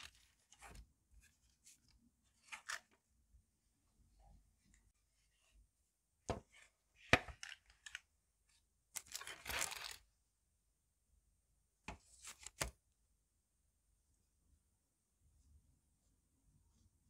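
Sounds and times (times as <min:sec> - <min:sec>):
baking paper rustling: 0:09.0 - 0:10.0.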